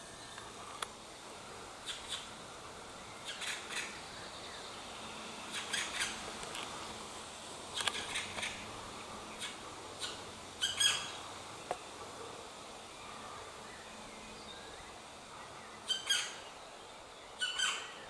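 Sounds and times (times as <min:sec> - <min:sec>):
woodpecker high-pitched calls: 0:01.8 - 0:02.3, 0:03.2 - 0:04.0, 0:05.5 - 0:06.3, 0:07.8 - 0:08.7, 0:09.3 - 0:11.2, 0:15.8 - 0:16.5, 0:17.4 - 0:18.0.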